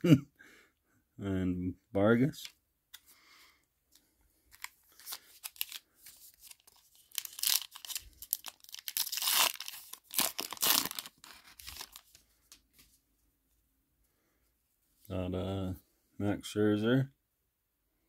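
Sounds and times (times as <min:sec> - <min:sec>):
foil wrapper tearing and crinkling: 0:04.5 - 0:12.2.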